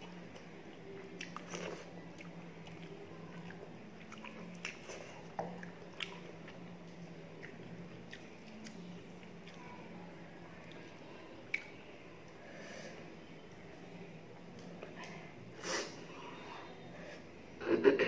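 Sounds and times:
chewing and lip smacking: 0:00.3 - 0:09.8, 0:10.6 - 0:11.8.

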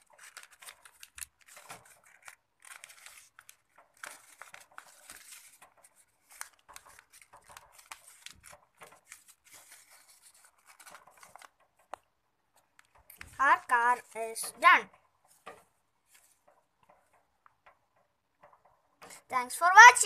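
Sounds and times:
paper folding and creasing: 0:00.0 - 0:19.3.

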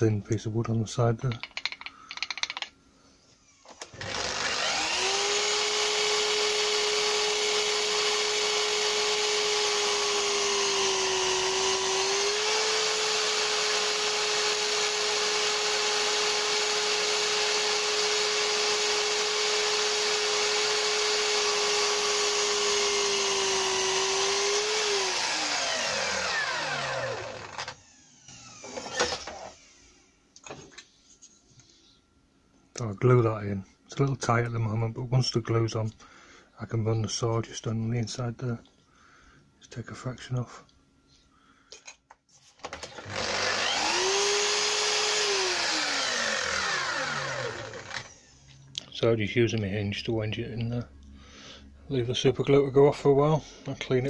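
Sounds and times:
mitre saw whining: 0:03.8 - 0:30.0, 0:42.7 - 0:48.4.

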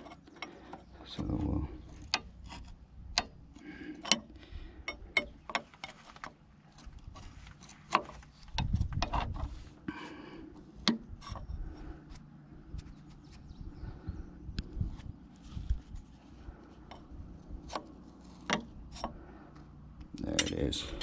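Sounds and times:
metal scraping: 0:00.0 - 0:09.8
dull handling rumble: 0:00.0 - 0:21.0
metal tools clinking: 0:20.2 - 0:21.0.

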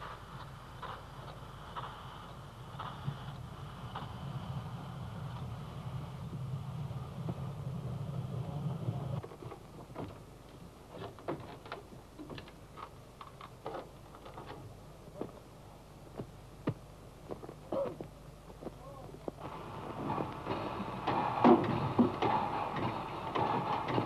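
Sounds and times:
steam train rumbling: 0:00.0 - 0:12.7, 0:13.9 - 0:24.0
sharp knocks and clanks: 0:20.0 - 0:24.0.

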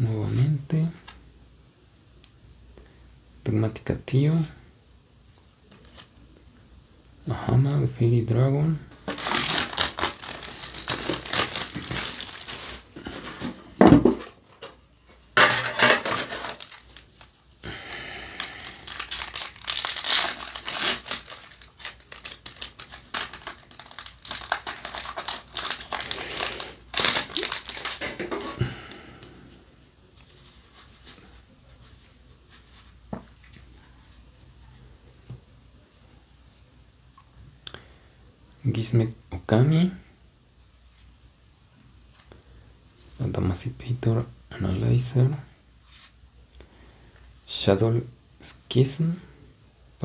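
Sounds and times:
plastic wrap crinkling: 0:08.9 - 0:13.6, 0:15.4 - 0:28.6
foil pack tearing and crinkling: 0:09.0 - 0:13.5, 0:15.6 - 0:17.3, 0:18.4 - 0:28.4.

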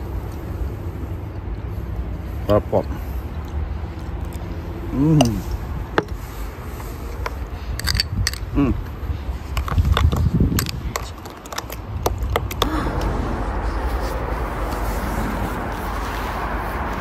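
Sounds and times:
steady rushing noise: 0:12.6 - 0:17.0.

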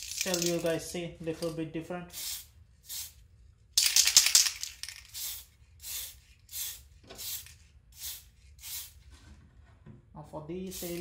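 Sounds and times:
aerosol spray can hissing: 0:02.2 - 0:03.2, 0:05.0 - 0:09.0, 0:10.7 - 0:11.0.

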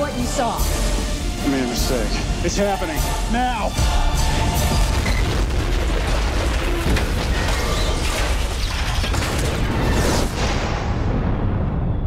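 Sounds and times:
trailer music: 0:00.0 - 0:12.0
explosion rumble and booming impacts: 0:04.2 - 0:12.0.

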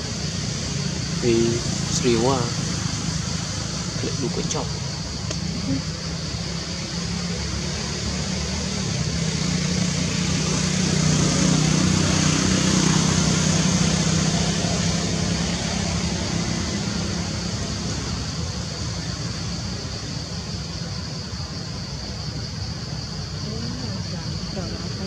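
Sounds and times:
passing vehicle engine hum: 0:00.0 - 0:20.0
steady high-pitched hiss: 0:00.0 - 0:25.0.

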